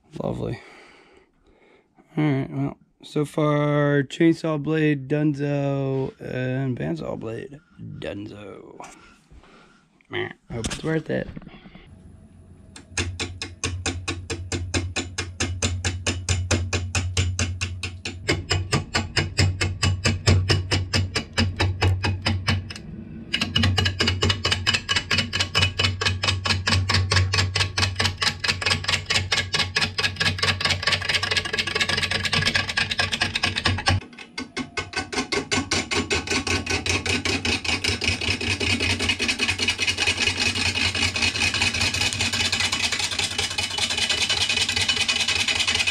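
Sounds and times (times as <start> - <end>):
gouge knocking on spinning wood: 12.8 - 22.7.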